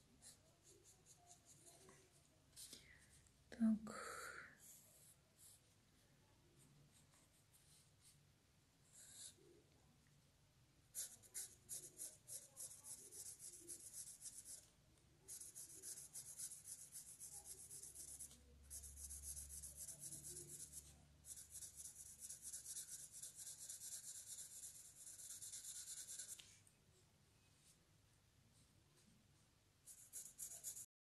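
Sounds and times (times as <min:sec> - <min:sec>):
pencil scratching on paper: 0:00.0 - 0:02.7, 0:08.8 - 0:09.4, 0:11.0 - 0:14.7, 0:15.3 - 0:26.4, 0:29.8 - 0:30.9.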